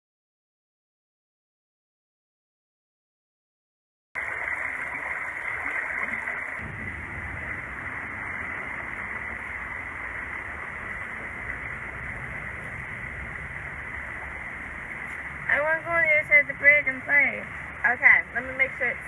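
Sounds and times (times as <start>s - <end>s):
creek water over stones: 4.2s - 19.0s
low rumble: 5.4s - 19.0s.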